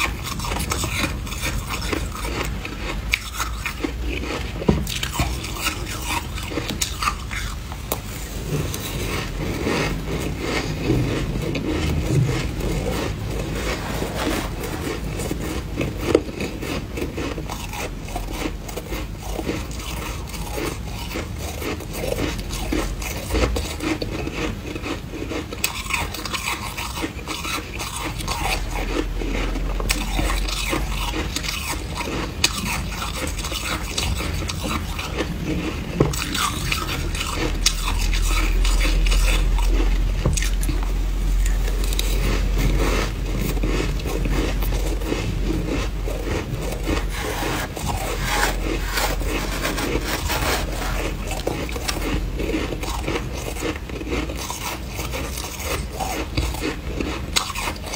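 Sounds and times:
frost crunching when chewed: 0.0 - 57.9
metal spoon scraping glass dish: 47.0 - 52.0.

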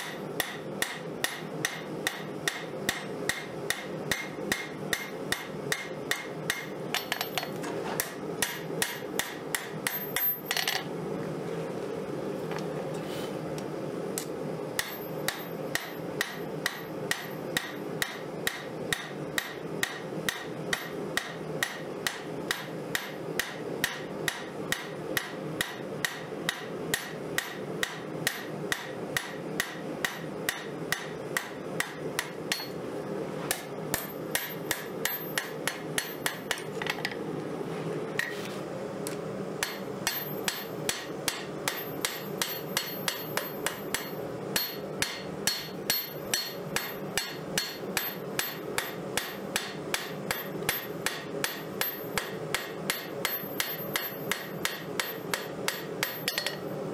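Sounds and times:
hammer striking metal on anvil: 0.0 - 10.8, 14.2 - 32.8, 33.5 - 37.0, 39.6 - 56.7.

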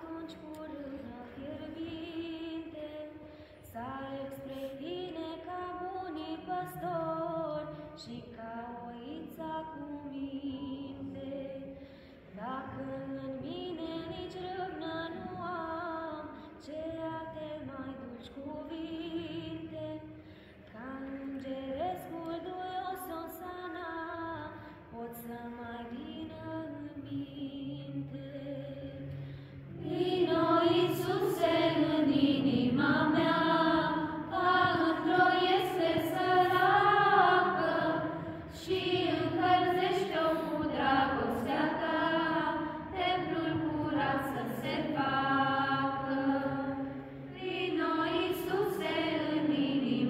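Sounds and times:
group singing unaccompanied: 25.1 - 50.0.

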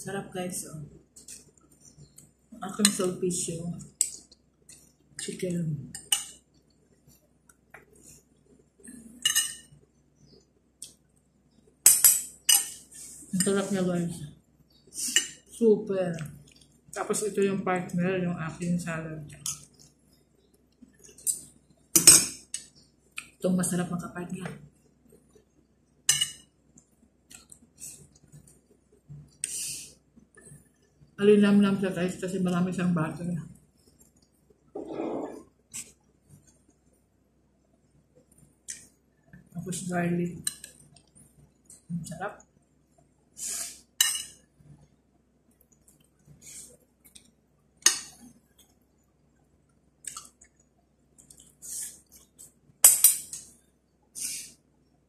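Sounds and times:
cutlery clinking on ceramic plates: 9.2 - 9.7, 11.9 - 12.8, 26.1 - 26.4, 44.0 - 44.4, 47.9 - 48.2, 52.8 - 53.5.

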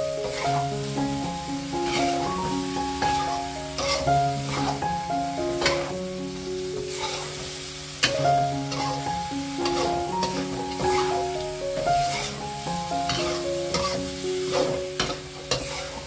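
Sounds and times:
food sizzling in wok: 0.0 - 16.0
soft background music: 0.0 - 16.0
metal spatula scraping wok: 0.2 - 0.6, 1.8 - 4.8, 5.6 - 6.0, 6.8 - 11.4, 12.0 - 12.5, 13.1 - 16.0.

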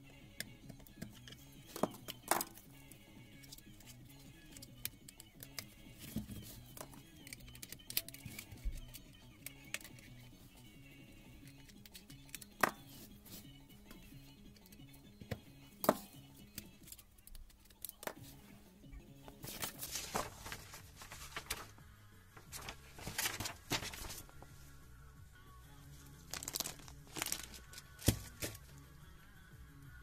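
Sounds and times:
soft background music: 0.0 - 30.0
paper rustling and crinkling: 19.4 - 21.8, 22.4 - 24.5, 26.2 - 28.6.

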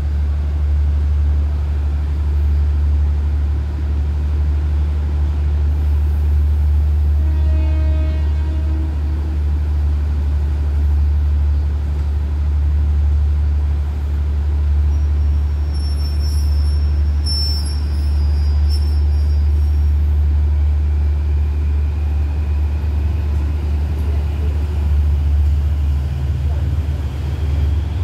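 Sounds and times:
diesel train engines idling: 0.0 - 28.0
faint high squeal: 14.9 - 19.8.

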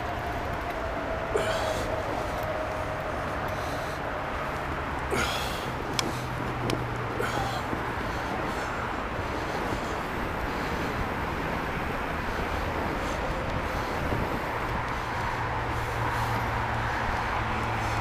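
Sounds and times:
bike tyres rolling on snow: 0.0 - 18.0
wind on microphone: 5.2 - 18.0.

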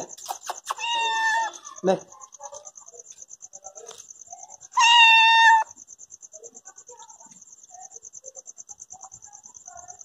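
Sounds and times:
crickets chirping: 0.0 - 10.0
cat meowing: 0.7 - 1.7, 4.8 - 5.7.

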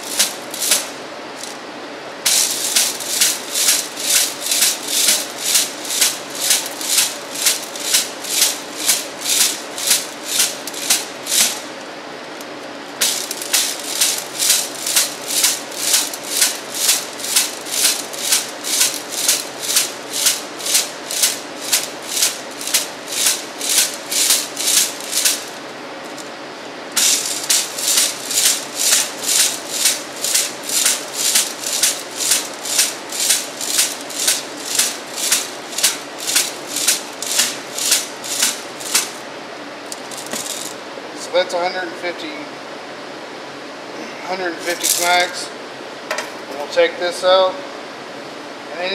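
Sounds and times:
stones rattling in sieve: 0.0 - 1.6, 2.3 - 11.7, 13.0 - 26.3, 27.0 - 39.2, 39.9 - 40.8, 44.6 - 45.3
hand smacking a sieve: 2.3 - 11.7, 13.0 - 26.3, 27.0 - 39.2, 39.9 - 40.8.

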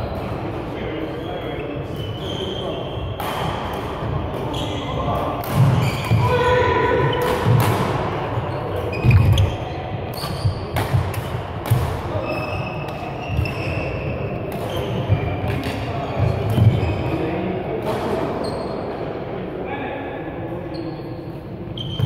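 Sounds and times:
shoe squeaks: 1.1 - 3.2, 4.4 - 5.0, 5.8 - 6.8, 8.5 - 10.7, 12.1 - 17.3, 18.4 - 18.8, 20.7 - 22.0
racket hitting shuttlecock: 3.2 - 4.5, 5.2 - 6.4, 7.0 - 8.2, 10.1 - 13.7, 14.5 - 16.8.

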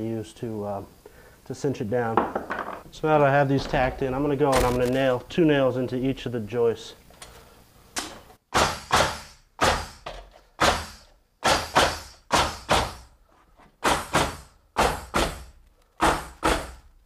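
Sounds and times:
pneumatic nail gun firing: 8.0 - 13.1, 13.8 - 16.9.

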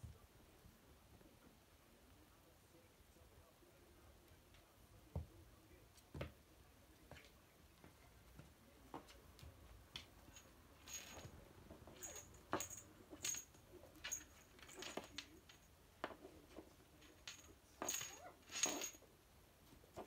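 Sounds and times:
small metallic jingle: 10.2 - 16.3, 17.0 - 19.1.

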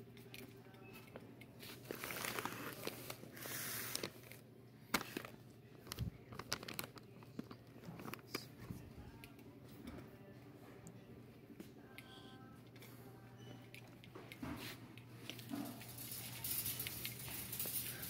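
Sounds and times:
plastic bags crinkling: 1.6 - 4.4, 5.0 - 8.2, 15.3 - 18.0.

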